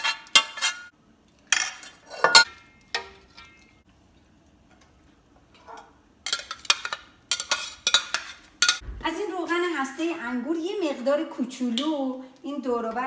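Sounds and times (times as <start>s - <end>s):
utensils clinking against cookware: 1.5s - 3.8s, 5.6s - 8.8s.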